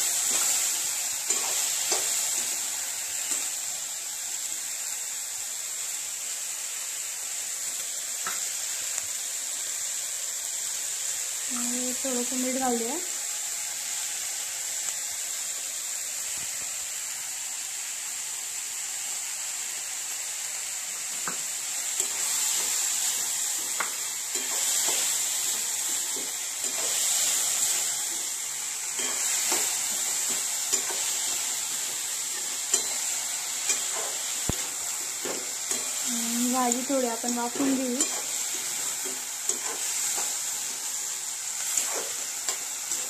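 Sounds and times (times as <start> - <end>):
vegetables sizzling in a pan: 0.0 - 43.0
spatula scraping the pan: 41.6 - 43.0.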